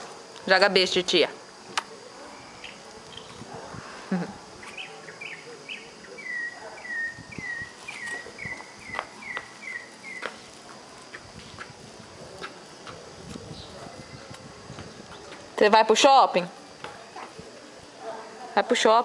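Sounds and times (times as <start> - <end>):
bird chirping: 2.4 - 3.4, 4.6 - 10.4.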